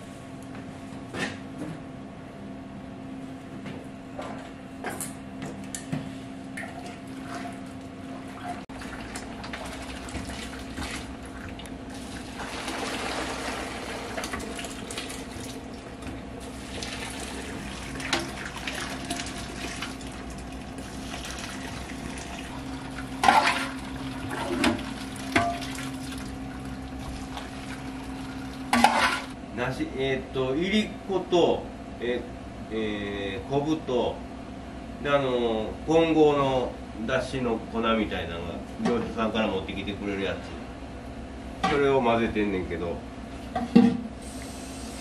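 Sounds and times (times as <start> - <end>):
kitchen hum: 4.2 - 31.5
liquid pouring and splashing: 8.7 - 28.8.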